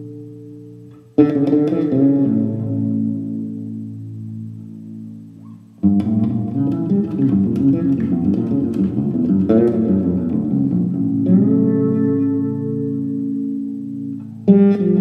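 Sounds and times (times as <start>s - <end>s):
fretless bass guitar playing: 0.0s - 15.0s.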